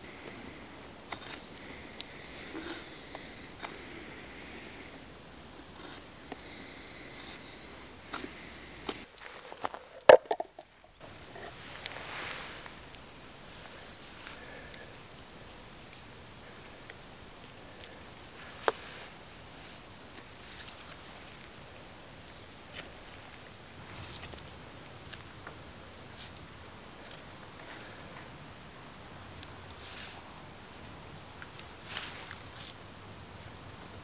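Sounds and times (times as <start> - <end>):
hands rustling feathers: 8.9 - 10.9, 31.6 - 32.7
high wavering bird song: 9.2 - 23.8.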